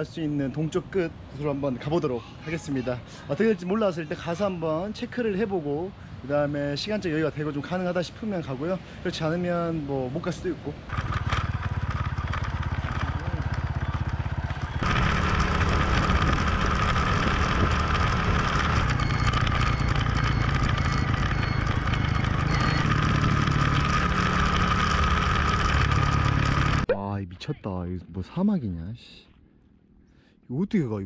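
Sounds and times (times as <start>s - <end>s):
road and wind noise: 0.0s - 27.0s
motorcycle engine running: 10.9s - 26.9s.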